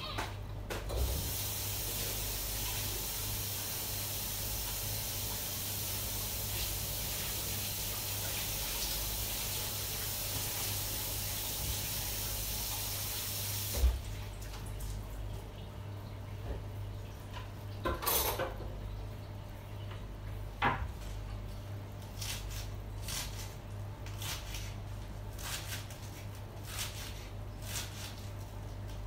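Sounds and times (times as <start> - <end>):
kitchen tap running into sink: 1.0 - 15.5.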